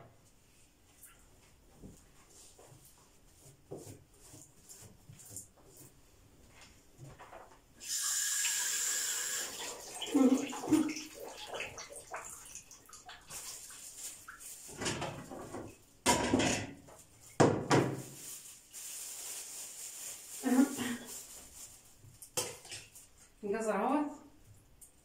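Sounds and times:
plastic bag rustling: 0:13.2 - 0:15.8, 0:17.0 - 0:23.1.

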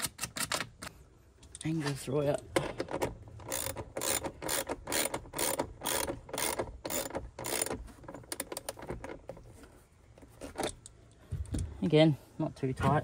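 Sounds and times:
ratchet wrench clicking: 0:03.4 - 0:08.8.

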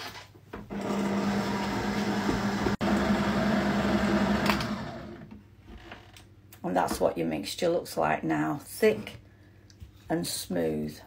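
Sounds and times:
stand mixer motor humming: 0:00.7 - 0:05.3.

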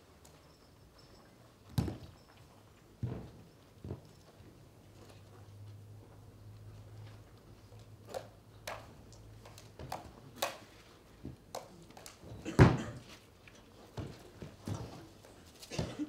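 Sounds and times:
juggling clubs smacking hands: 0:08.0 - 0:12.2.

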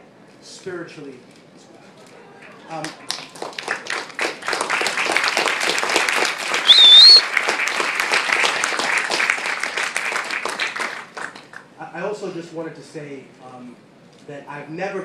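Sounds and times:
audience applauding: 0:02.4 - 0:11.6
high wavering whistle: 0:06.6 - 0:07.3.

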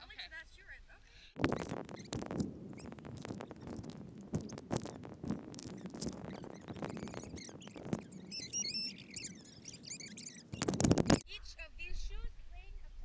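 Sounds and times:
wavering high squeak: 0:01.4 - 0:11.2.

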